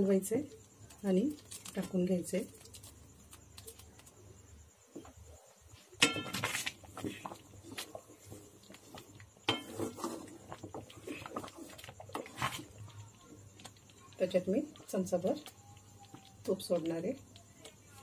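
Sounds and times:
spatula scraping metal pan: 9.5s - 10.4s.

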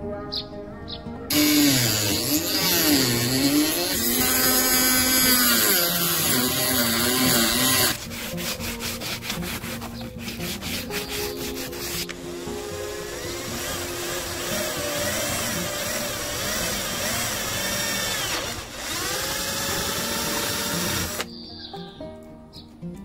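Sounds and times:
hand sanding pipe: 1.3s - 18.1s
rotary tool cutting pipe: 1.3s - 21.3s.

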